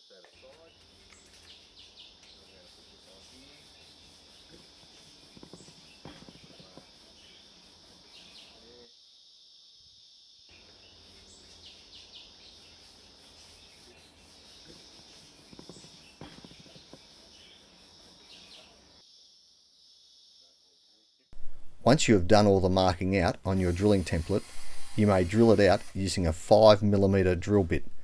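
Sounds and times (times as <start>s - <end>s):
steady high-pitched hiss: 0.0s - 28.0s
marker pen drawing: 2.2s - 7.4s, 12.6s - 18.7s, 23.5s - 25.9s
light knocks and scratches: 4.9s - 7.0s, 14.6s - 17.5s.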